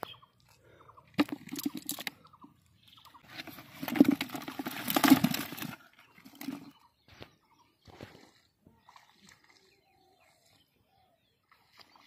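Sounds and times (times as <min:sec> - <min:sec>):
fish flapping in a bucket: 0:01.2 - 0:02.2, 0:03.2 - 0:06.8.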